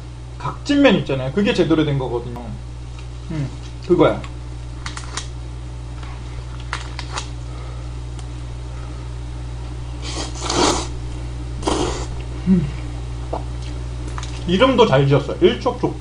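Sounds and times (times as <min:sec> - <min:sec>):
steady low hum: 0:00.0 - 0:16.0
man slurping noodles: 0:10.0 - 0:11.0, 0:11.6 - 0:12.2.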